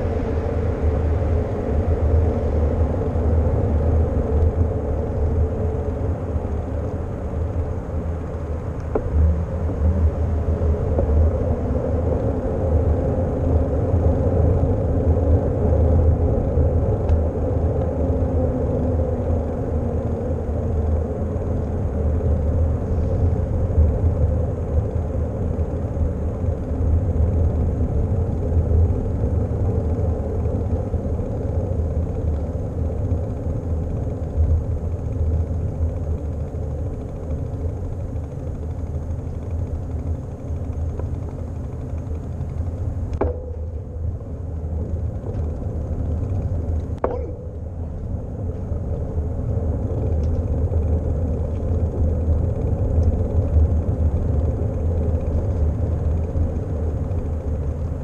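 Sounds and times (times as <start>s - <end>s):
bicycle tyres rolling on asphalt: 0.0s - 58.0s
wind rumbling on microphone: 0.0s - 58.0s.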